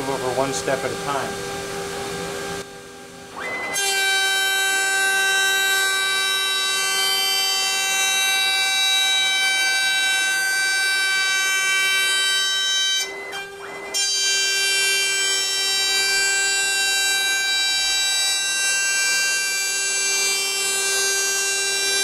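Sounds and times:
router spindle whine: 0.0s - 22.0s.

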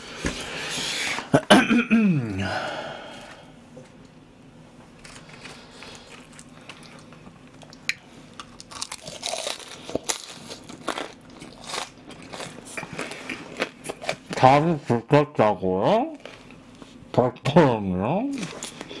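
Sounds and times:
biting crispy fried food: 5.0s - 14.3s
crisp chewing crunches: 5.0s - 14.6s.

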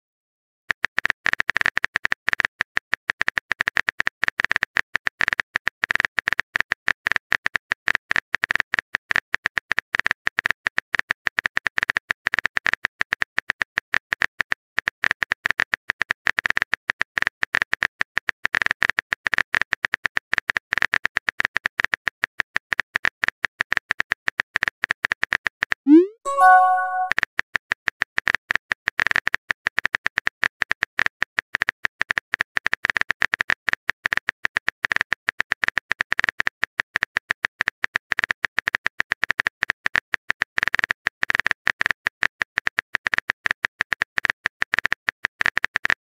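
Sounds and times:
keyboard typing clicks: 25.9s - 27.1s.

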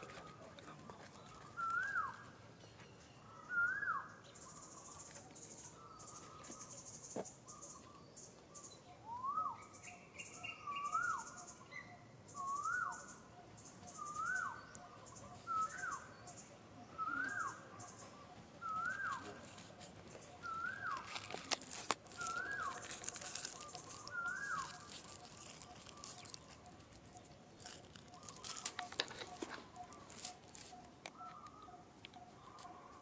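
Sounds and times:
dry crackling rustles: 0.0s - 2.3s, 17.2s - 33.0s
bird whistled call: 1.4s - 2.2s, 3.4s - 4.8s, 9.0s - 13.2s, 13.9s - 16.1s, 16.8s - 19.4s, 20.4s - 21.2s, 22.2s - 24.9s.

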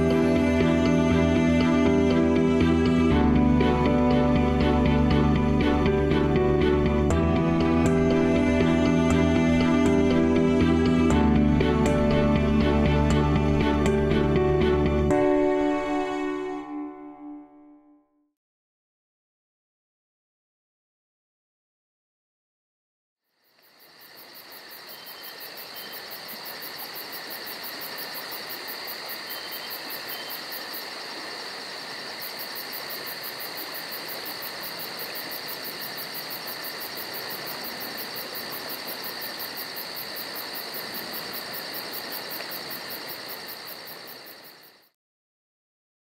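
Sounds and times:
insect chorus buzzing: 23.3s - 45.0s.

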